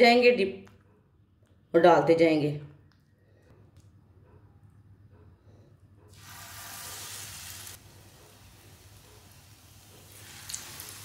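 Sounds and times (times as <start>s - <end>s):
frying sizzle in hot fat: 6.1s - 11.0s.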